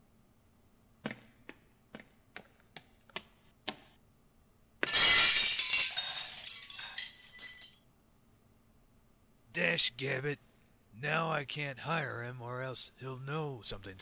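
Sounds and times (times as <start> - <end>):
glass shards tinkling: 4.9 - 7.8
large window shattering: 4.9 - 7.8.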